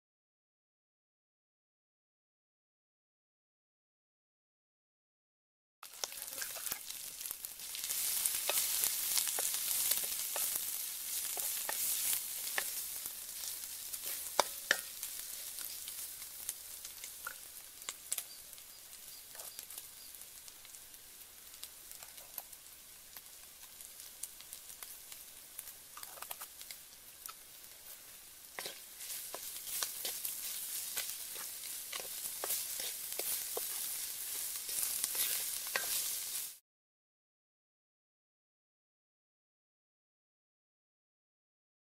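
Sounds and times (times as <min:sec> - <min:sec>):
food sizzling in hot oil: 0:05.8 - 0:36.6
spatula scraping pan: 0:06.0 - 0:06.9, 0:07.6 - 0:16.1, 0:26.0 - 0:36.6.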